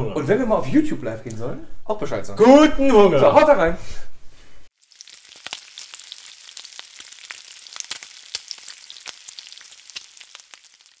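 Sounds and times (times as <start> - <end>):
food sizzling in hot fat: 4.7 - 11.0.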